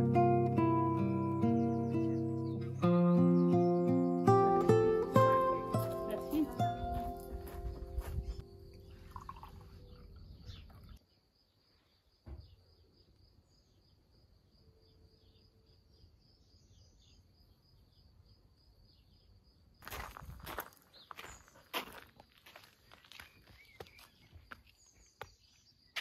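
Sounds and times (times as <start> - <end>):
bird chirps: 0.9 - 14.0, 23.0 - 26.0
footsteps: 5.0 - 9.2, 19.8 - 25.4.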